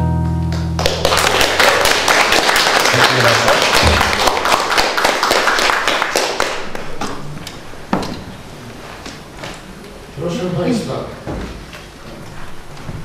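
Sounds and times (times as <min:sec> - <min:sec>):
acoustic guitar: 0:00.0 - 0:01.1
audience applauding: 0:00.6 - 0:07.0.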